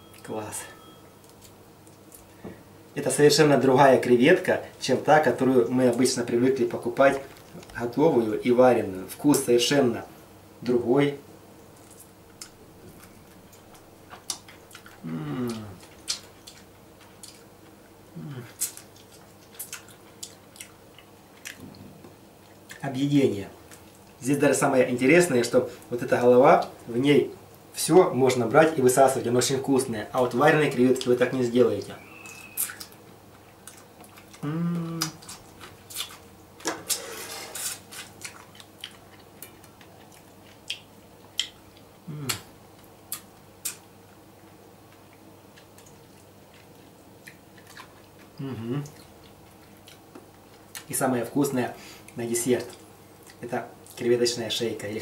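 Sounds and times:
person humming mmm: 15.0 - 15.9, 18.1 - 18.7, 34.3 - 35.2, 42.0 - 42.5, 48.4 - 49.0
lip smacks: 32.2 - 33.0, 33.6 - 37.0, 37.6 - 42.5, 43.1 - 43.9.

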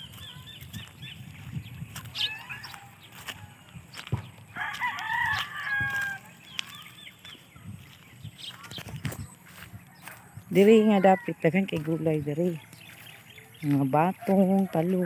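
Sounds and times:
rooster crowing: 2.2 - 3.6, 4.5 - 6.3, 10.0 - 11.4.

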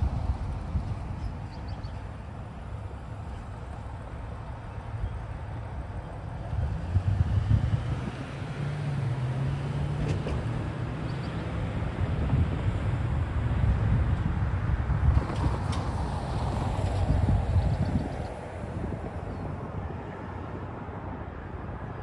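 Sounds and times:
bus pulling away: 0.0 - 19.0
car driving past: 6.5 - 12.3.

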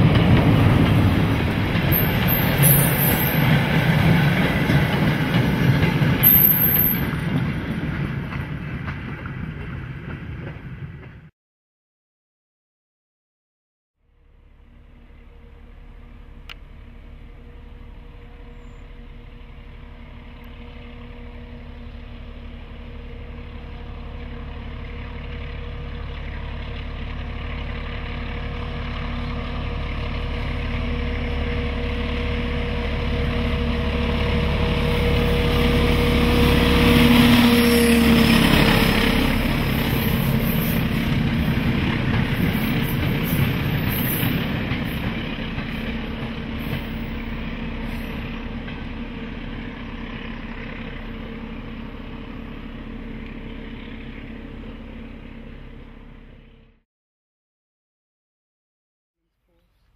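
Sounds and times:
wagons rolling past: 0.0 - 8.6, 24.9 - 49.6
diesel locomotive engine: 0.0 - 11.3, 14.0 - 56.8.

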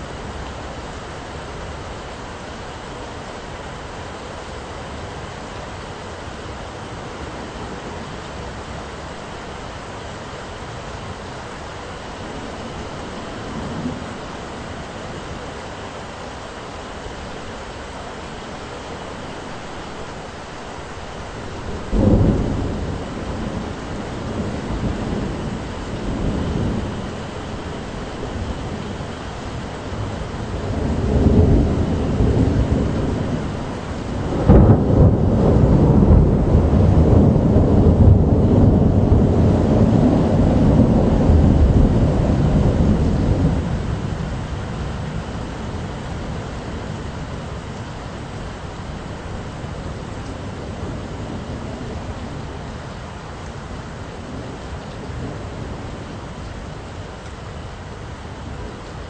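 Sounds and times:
rain hiss: 0.0 - 59.0
thunder rumbling: 11.4 - 15.8, 20.6 - 57.2.

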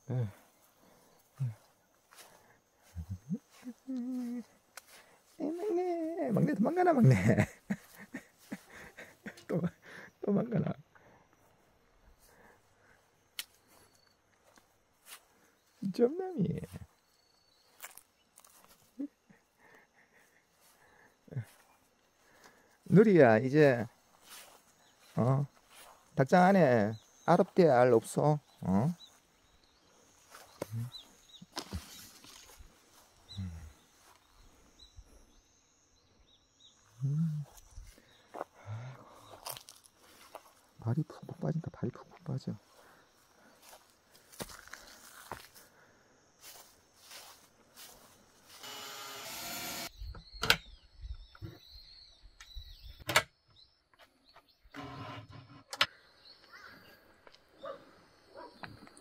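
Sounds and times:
small birds chirping: 0.0 - 54.9, 55.6 - 59.0
small power tool whirring: 48.5 - 50.0.

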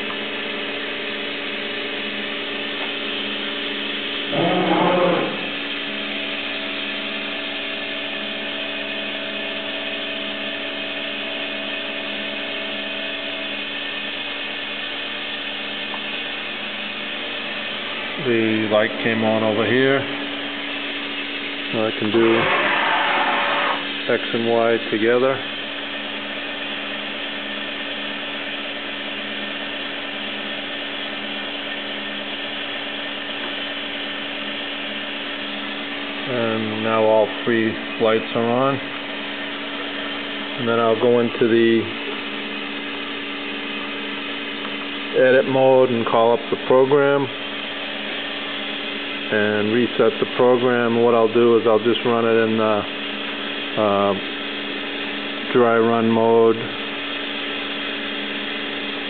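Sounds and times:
machining center humming: 0.0 - 59.0
servo whine: 2.0 - 13.7, 17.2 - 25.8.

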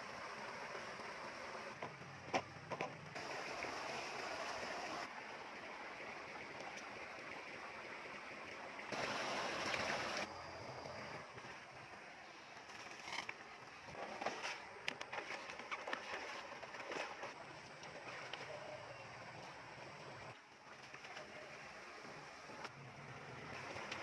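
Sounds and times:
water sloshing around wading person: 11.3 - 22.6.

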